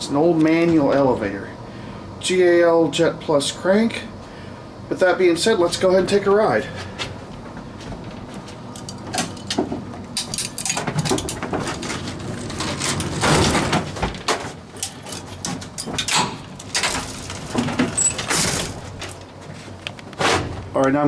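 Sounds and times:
chain latch rattling: 0:08.8 - 0:09.6, 0:10.2 - 0:13.3, 0:14.8 - 0:18.5
metal clicks and knocks: 0:08.8 - 0:19.3
metal gate scraping: 0:10.2 - 0:14.0, 0:14.9 - 0:19.0.

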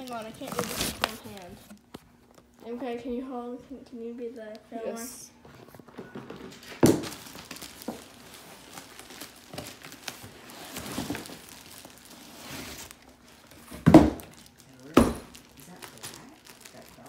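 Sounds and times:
cardboard box rustling: 0:00.0 - 0:01.7, 0:06.8 - 0:13.8
plastic wrap crinkling: 0:00.0 - 0:02.6, 0:05.7 - 0:17.0.

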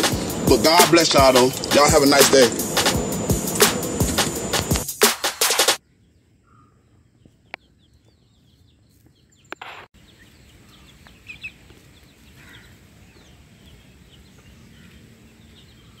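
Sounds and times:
chicks chirping and clucking: 0:10.0 - 0:16.0.

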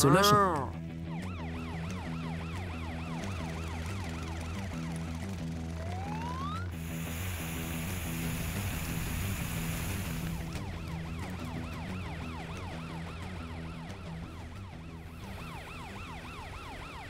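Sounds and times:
cartoon police siren wailing: 0:00.0 - 0:05.0, 0:05.8 - 0:06.8, 0:10.3 - 0:17.0
background music: 0:00.0 - 0:17.0
water spraying hiss: 0:06.8 - 0:10.4.

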